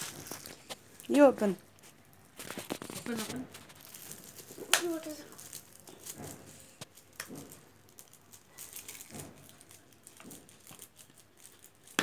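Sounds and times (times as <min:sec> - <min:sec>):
foil gift wrap crinkling: 0:00.0 - 0:12.0.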